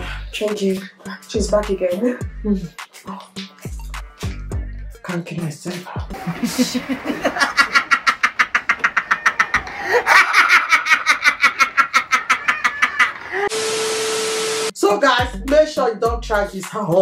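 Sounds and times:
man laughing hysterically: 0:06.2 - 0:13.5.

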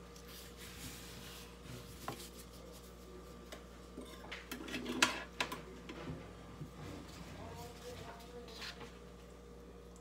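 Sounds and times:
gloved hands rubbing on cutting board: 0:00.2 - 0:03.5.

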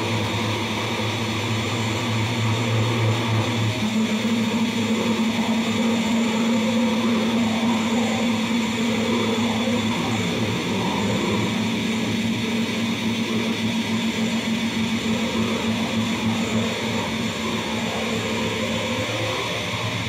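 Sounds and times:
constant low drone: 0:00.0 - 0:20.0
dense amplified noise: 0:00.0 - 0:20.0.

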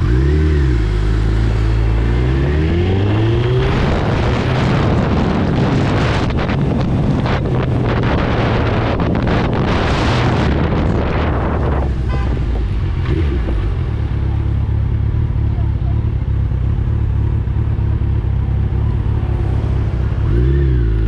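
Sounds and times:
wind rushing over microphone: 0:00.8 - 0:14.2.

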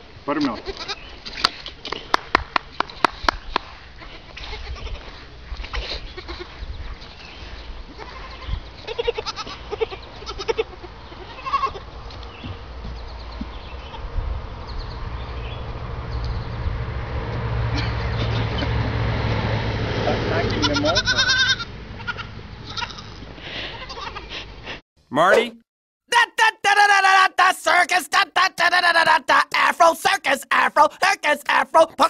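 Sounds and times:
goat kids bleating: 0:00.4 - 0:01.1, 0:03.9 - 0:05.1, 0:05.7 - 0:06.6, 0:07.9 - 0:11.9, 0:20.5 - 0:24.3.

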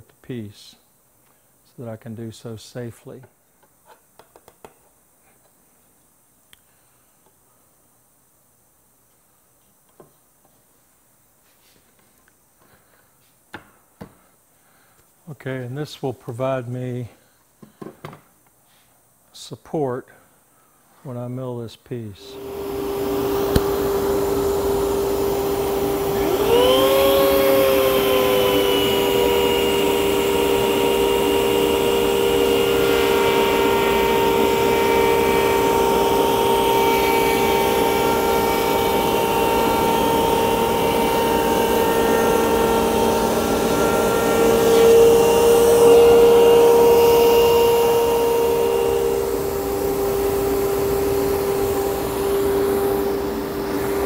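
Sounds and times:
dust extraction hum: 0:21.1 - 0:54.0
router whining: 0:22.3 - 0:54.0.

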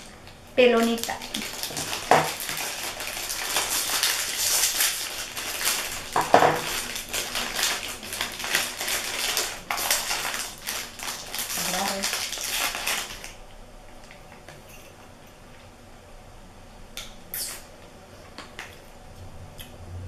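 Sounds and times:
plastic wrappers crinkling: 0:00.0 - 0:13.4.

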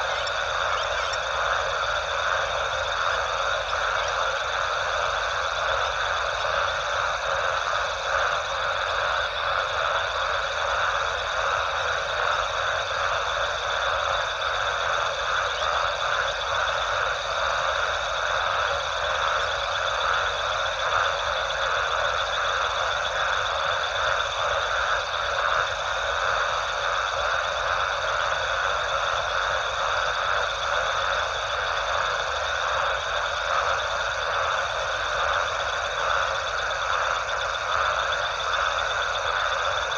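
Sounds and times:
faint steady high tone: 0:00.0 - 0:02.0
frogs trilling: 0:00.0 - 0:39.9.

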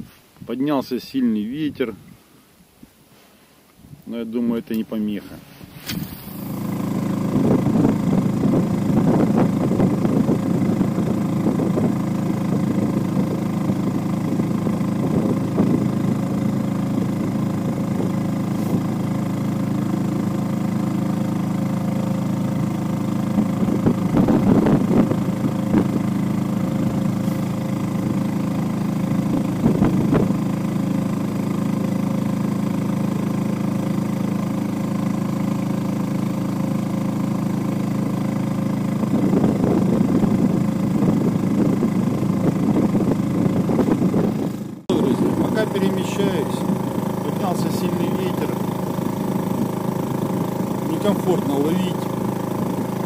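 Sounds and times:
wind noise on microphone: 0:03.8 - 0:04.1, 0:05.4 - 0:19.2, 0:23.2 - 0:30.6, 0:38.6 - 0:47.0
outboard motor running: 0:04.2 - 0:53.0.

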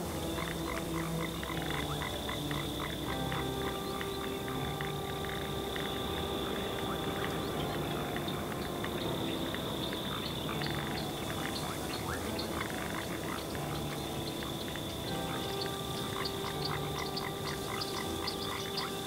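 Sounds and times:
frogs calling: 0:00.0 - 0:19.0
high-pitched insect drone: 0:00.0 - 0:19.0.

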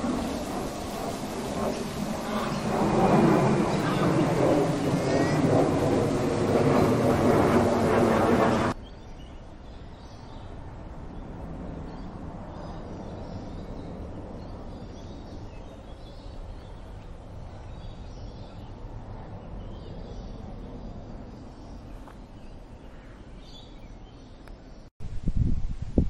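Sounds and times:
loud dense rumbling: 0:00.0 - 0:08.8.

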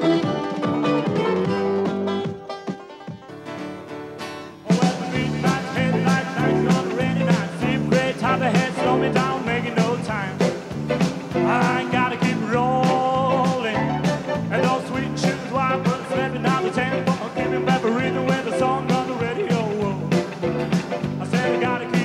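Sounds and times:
country rock band playing: 0:00.0 - 0:22.0
person singing: 0:04.6 - 0:10.6, 0:11.3 - 0:22.0.

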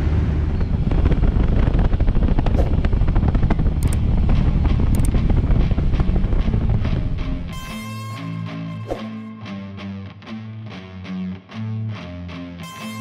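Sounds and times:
motorcycle engine running: 0:00.0 - 0:07.7.

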